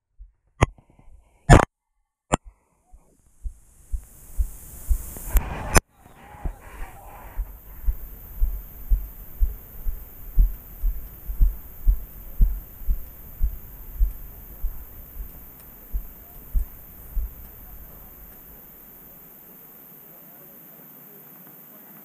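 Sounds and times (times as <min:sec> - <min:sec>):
footsteps dull thuds: 0:02.3 - 0:19.2.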